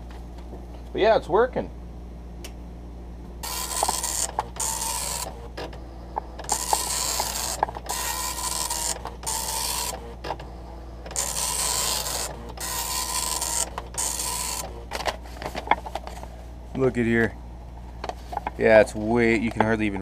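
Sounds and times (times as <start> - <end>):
printer paper feed clicks: 3.4 - 5.8, 6.4 - 15.1
dot-matrix print head buzzing: 3.4 - 15.0.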